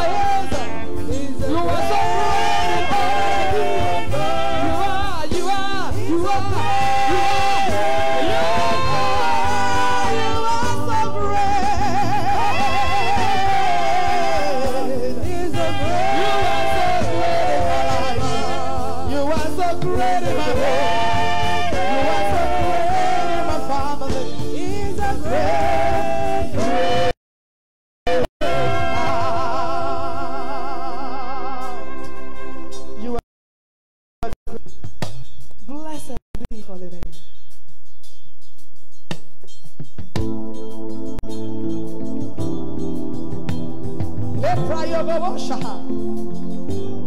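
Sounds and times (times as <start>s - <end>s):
woman singing gospel: 0.0s - 24.0s
live band playing: 0.0s - 27.1s, 28.1s - 30.0s, 31.4s - 33.2s, 37.1s - 47.0s.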